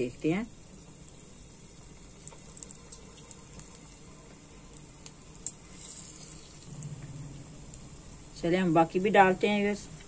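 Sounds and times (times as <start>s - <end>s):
food sizzling in hot oil: 0.0s - 10.0s
oil popping: 0.9s - 7.8s.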